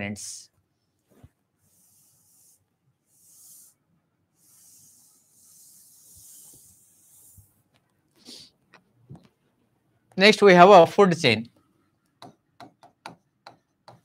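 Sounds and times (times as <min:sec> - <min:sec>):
palm wiping whiteboard: 0:00.8 - 0:07.7.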